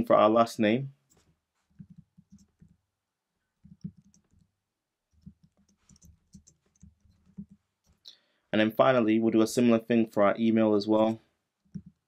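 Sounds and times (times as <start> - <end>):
computer keyboard typing: 1.8 - 2.8, 3.6 - 4.5, 5.1 - 8.0, 11.7 - 12.0.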